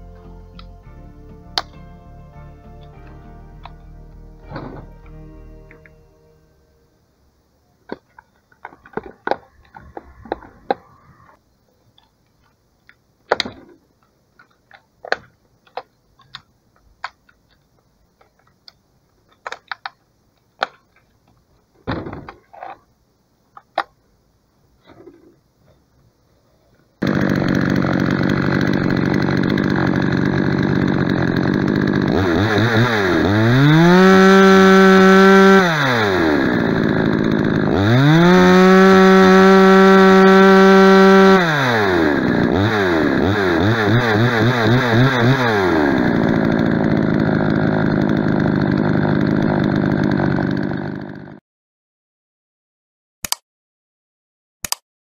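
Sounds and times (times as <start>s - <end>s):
chainsaw revving: 27.0s - 51.4s.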